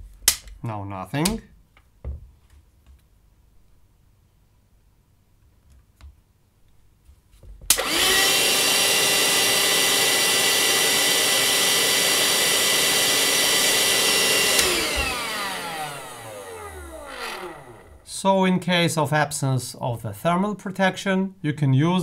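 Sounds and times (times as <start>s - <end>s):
handheld vacuum cleaner whine: 7.7s - 18.2s
motor spinning down: 7.8s - 18.1s.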